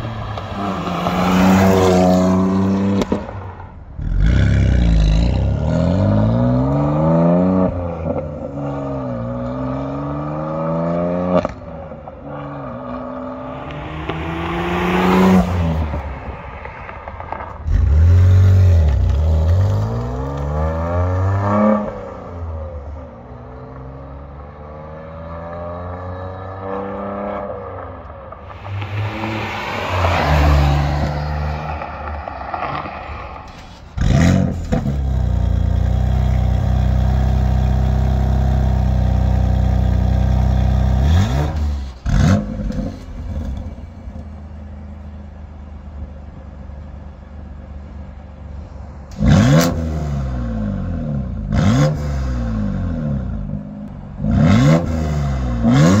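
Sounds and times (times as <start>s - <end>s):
car engine accelerating: 0.0s - 23.0s, 23.7s - 45.4s.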